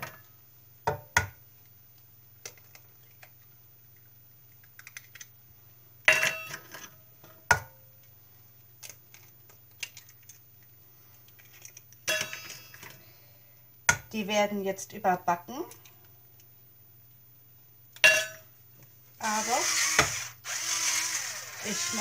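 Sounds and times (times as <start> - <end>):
eggs cracking on ceramic dish: 4.6 - 5.3.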